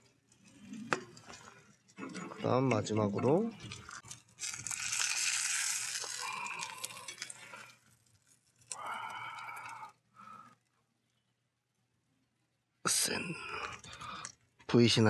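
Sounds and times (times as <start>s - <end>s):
bacon fat sizzling in skillet: 3.7s - 8.8s.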